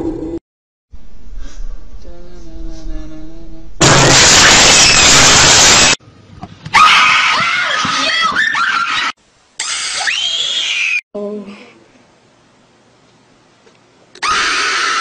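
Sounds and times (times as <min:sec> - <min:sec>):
young people screaming: 0:06.7 - 0:11.0, 0:14.2 - 0:15.0.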